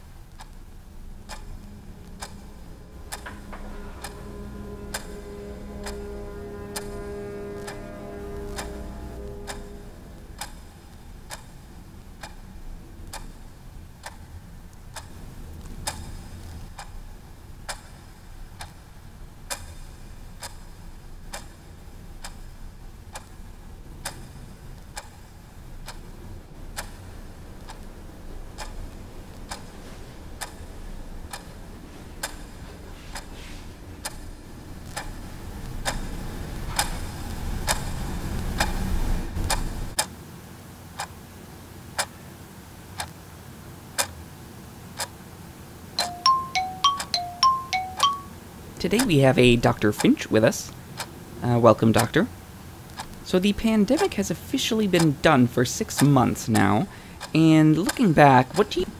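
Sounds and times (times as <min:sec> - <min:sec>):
low rumble: 0:00.0 - 0:17.7
clock ticking: 0:00.0 - 0:33.4, 0:34.0 - 0:40.1, 0:46.0 - 0:48.3, 0:48.9 - 0:50.4, 0:51.8 - 0:52.3, 0:52.9 - 0:58.9.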